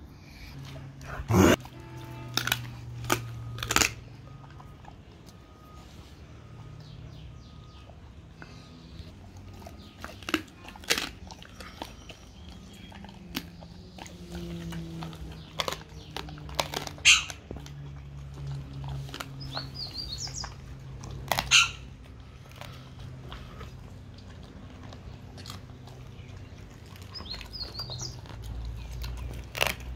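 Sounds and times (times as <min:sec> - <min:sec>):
dog chewing wetly: 0:00.4 - 0:29.9
bone crunching: 0:01.1 - 0:04.7, 0:09.8 - 0:12.0, 0:14.6 - 0:29.9.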